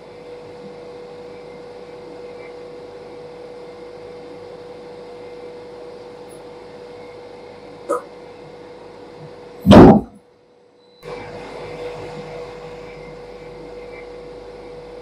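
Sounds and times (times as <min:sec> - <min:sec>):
loud machine burst: 0:09.7 - 0:10.2.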